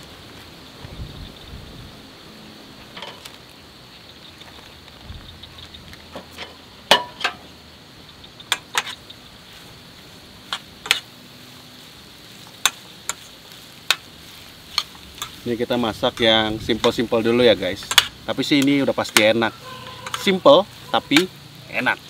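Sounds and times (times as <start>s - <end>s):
meat and onions sizzling: 0.0s - 22.0s
metal tongs clicking on pan: 14.7s - 15.4s, 17.8s - 20.4s.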